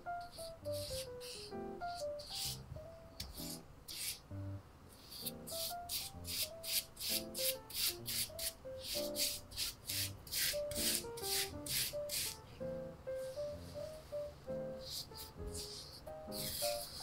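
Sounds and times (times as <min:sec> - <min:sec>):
spatula scraping filling on dough: 0:00.1 - 0:02.6, 0:03.2 - 0:04.2, 0:05.0 - 0:12.4, 0:14.9 - 0:17.0.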